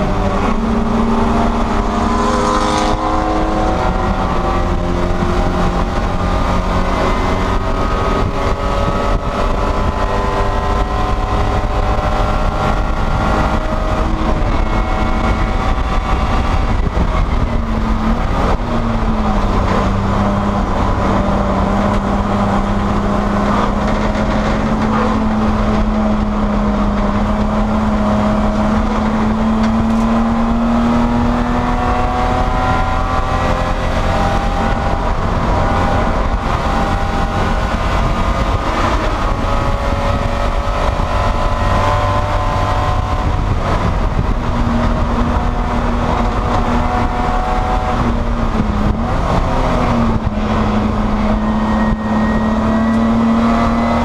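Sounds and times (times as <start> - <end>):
race car engine pulling hard: 0.0 - 54.0
road and wind noise: 0.0 - 54.0.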